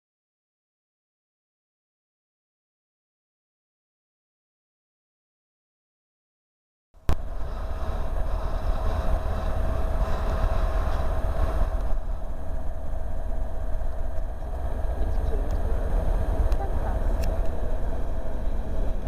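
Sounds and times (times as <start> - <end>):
train rumbling: 7.0 - 19.0.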